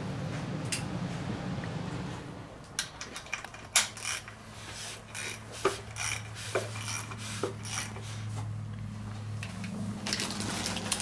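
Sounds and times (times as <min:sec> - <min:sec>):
ratchet wrench clicking: 0:02.8 - 0:04.4, 0:05.0 - 0:08.0.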